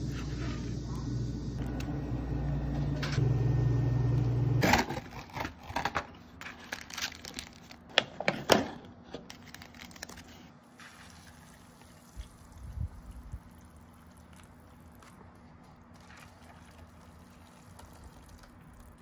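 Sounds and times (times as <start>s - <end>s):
steady low hum: 0.0s - 4.8s
packaging crinkling and rustling: 4.8s - 8.4s, 9.2s - 10.5s.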